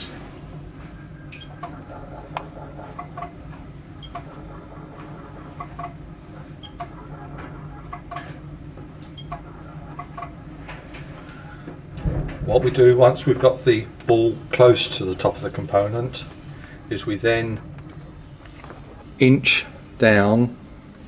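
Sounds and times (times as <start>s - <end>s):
milling machine humming: 0.0s - 21.0s.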